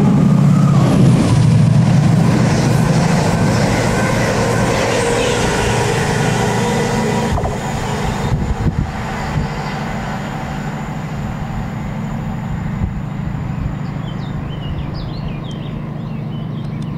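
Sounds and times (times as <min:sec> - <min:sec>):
train rumbling: 0:00.0 - 0:16.9
faint high whine: 0:02.3 - 0:16.1
birds chirping: 0:12.6 - 0:16.9.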